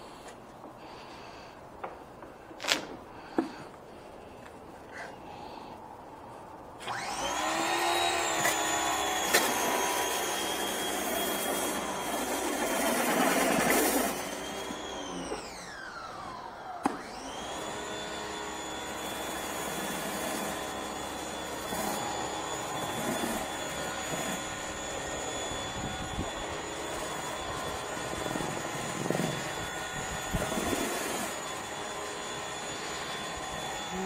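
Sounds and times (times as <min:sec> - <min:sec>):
pressure washer motor whine: 0:06.8 - 0:34.0.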